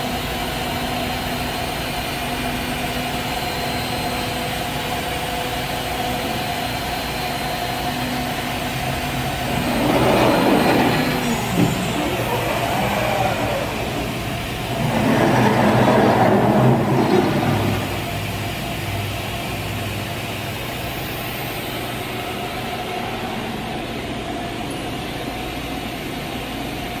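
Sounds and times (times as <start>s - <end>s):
steady machine hum: 0.0s - 27.0s
cnc router axes traversing: 9.0s - 18.4s.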